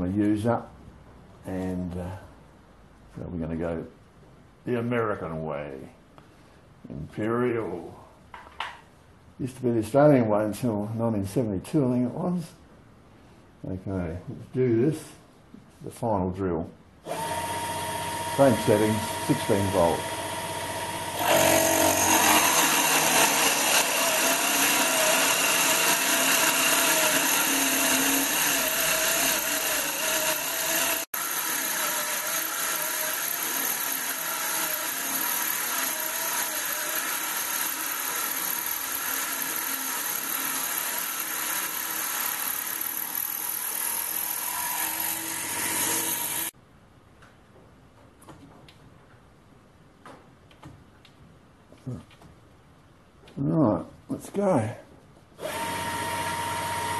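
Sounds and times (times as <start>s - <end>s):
power spindle drilling: 17.1s - 46.5s, 55.4s - 56.9s.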